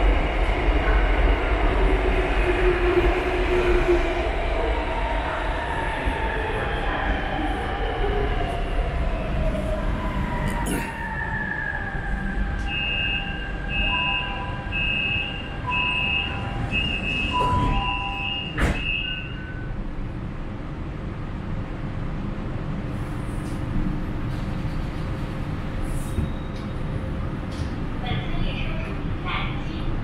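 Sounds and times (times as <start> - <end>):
low rumble inside train car: 0.0 - 30.0
door warning chime: 12.7 - 19.4.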